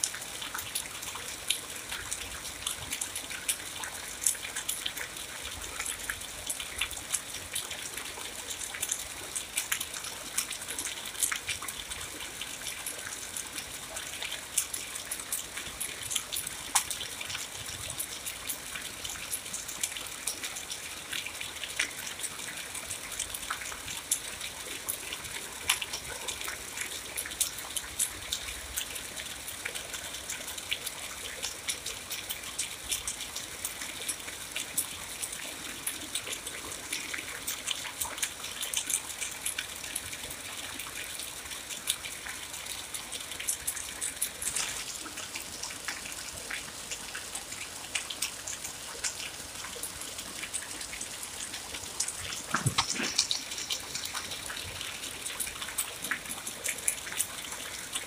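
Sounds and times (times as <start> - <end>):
steady rain: 0.0 - 58.0
close raindrop hits: 50.4 - 56.4.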